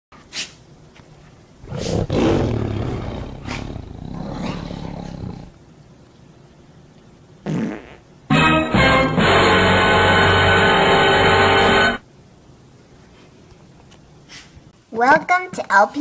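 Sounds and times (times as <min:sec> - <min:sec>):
dogs growling: 0:01.6 - 0:05.6.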